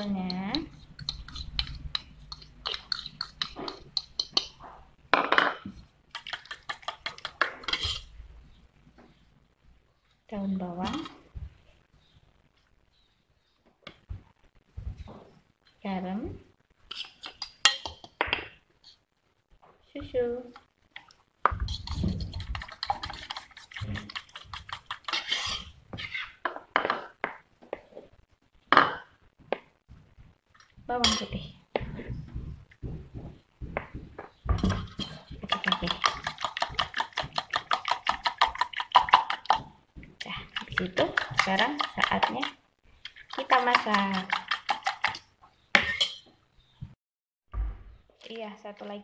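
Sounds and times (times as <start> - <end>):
spoon beating egg in metal pot: 0.0 - 4.6, 5.8 - 8.1, 16.9 - 18.2, 21.0 - 25.8, 34.7 - 46.2
spoon tapping pot: 0.0 - 4.6, 17.2 - 18.4, 40.6 - 42.6
spoon clinking against pot: 17.2 - 18.1.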